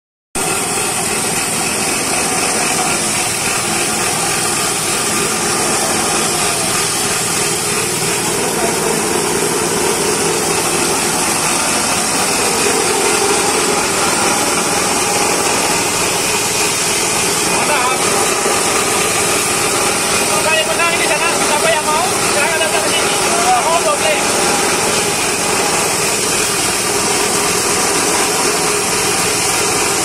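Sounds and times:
engine running with hiss: 0:00.4 - 0:30.0.

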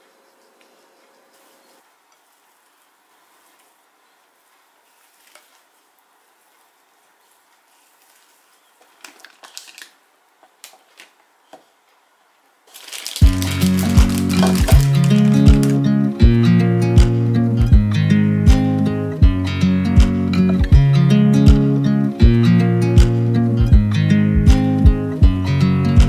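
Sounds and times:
spatula squishing dough: 0:00.0 - 0:09.6.

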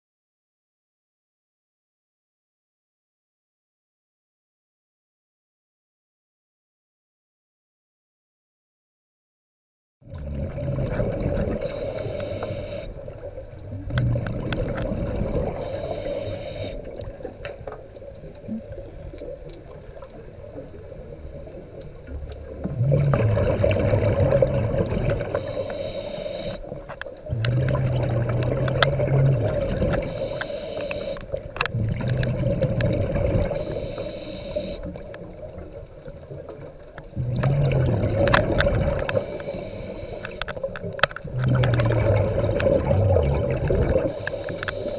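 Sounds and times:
regulator inhalation hiss: 0:11.6 - 0:13.0, 0:15.6 - 0:16.9, 0:25.4 - 0:26.8, 0:30.1 - 0:31.2, 0:33.6 - 0:34.9, 0:39.1 - 0:40.5, 0:44.0 - 0:44.9
bubbling exhaust: 0:22.7 - 0:26.6, 0:27.3 - 0:34.8, 0:37.2 - 0:40.3, 0:41.3 - 0:44.9.

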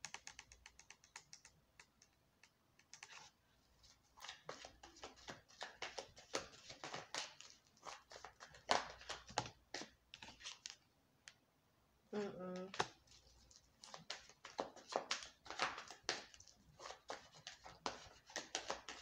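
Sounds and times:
cards shuffling: 0:04.1 - 0:10.8, 0:12.7 - 0:19.0.

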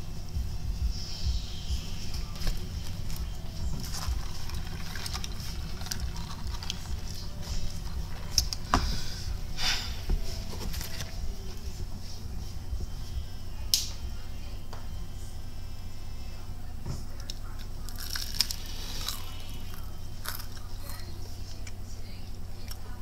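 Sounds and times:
low room and microphone hum: 0:00.0 - 0:23.0
handling clicks and rustles: 0:02.1 - 0:08.9.

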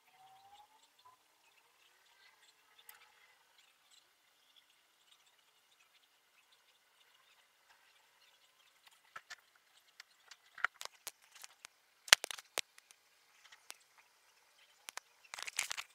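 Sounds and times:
phone handling clicks and scratches: 0:10.6 - 0:12.9, 0:14.9 - 0:15.9.

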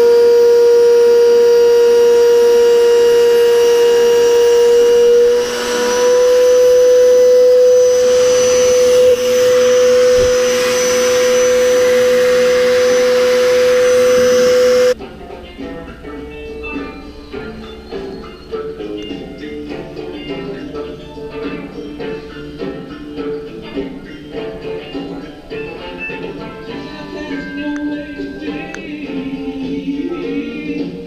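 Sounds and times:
router high whine: 0:00.0 - 0:15.0.

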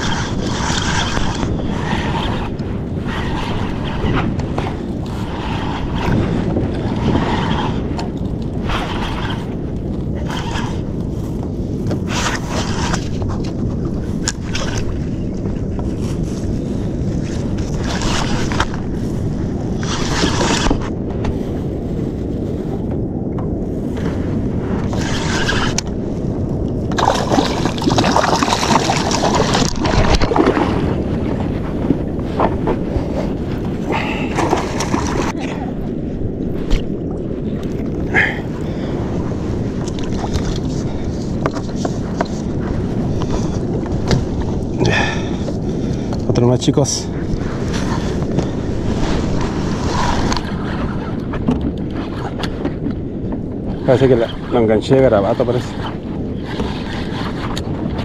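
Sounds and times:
wind buffeting microphone: 0:00.0 - 0:58.0
fish thrashing in water: 0:27.0 - 0:30.8.

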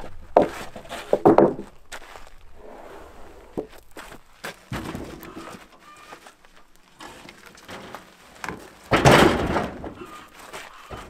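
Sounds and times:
log thudding on trailer: 0:00.3 - 0:01.8, 0:04.7 - 0:05.7, 0:07.0 - 0:10.3.

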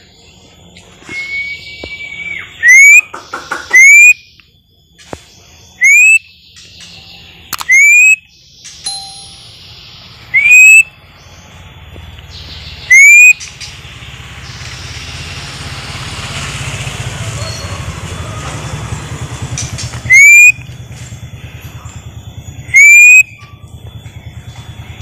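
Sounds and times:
rising whistles: 0:00.0 - 0:04.4, 0:05.8 - 0:08.3, 0:09.5 - 0:11.7, 0:12.7 - 0:25.0
rumbling noise: 0:13.6 - 0:22.8.

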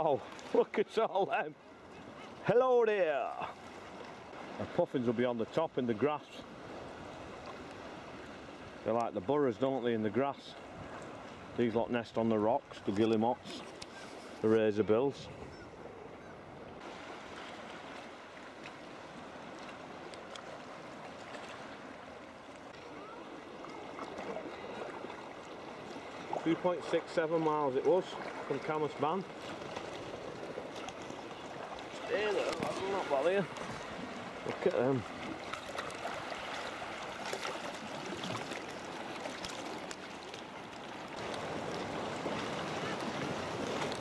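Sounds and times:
water lapping around kayak hull: 0:00.0 - 0:44.0
seabird calls: 0:01.3 - 0:02.6, 0:12.9 - 0:16.8
small clicks and splashes: 0:19.5 - 0:21.7, 0:30.7 - 0:44.0.

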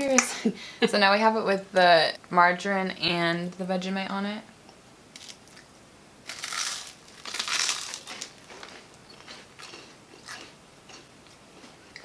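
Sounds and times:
biting into dry toast: 0:06.3 - 0:12.0
chewing crackles: 0:06.3 - 0:12.0.

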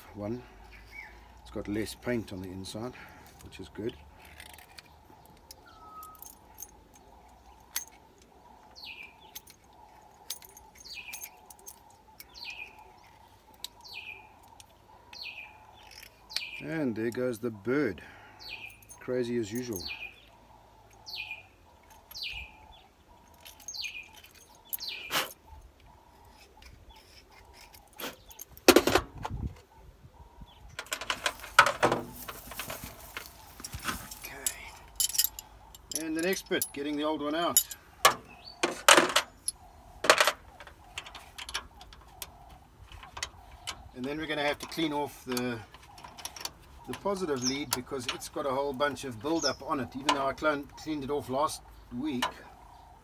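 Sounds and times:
bird calling: 0:00.0 - 0:53.0
metal tools clinking and rattling: 0:04.2 - 0:08.3, 0:08.9 - 0:12.6, 0:18.6 - 0:20.2, 0:23.2 - 0:25.4, 0:30.8 - 0:50.8
jangling clicks: 0:09.2 - 0:12.4, 0:23.2 - 0:25.4, 0:33.6 - 0:38.1
small metal parts clicking: 0:34.4 - 0:38.1.

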